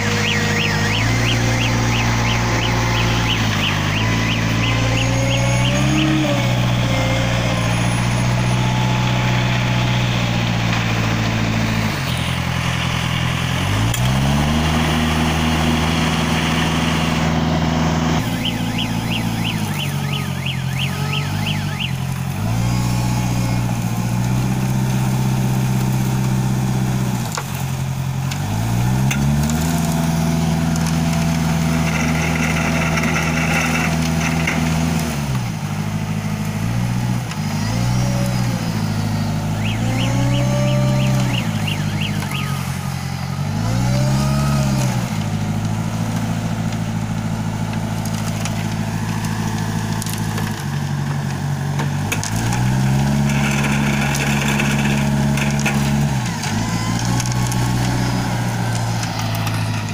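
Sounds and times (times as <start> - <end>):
fast high warble: 0.0 - 6.7, 18.2 - 22.1, 39.5 - 42.7
diesel engine revving: 0.0 - 59.9.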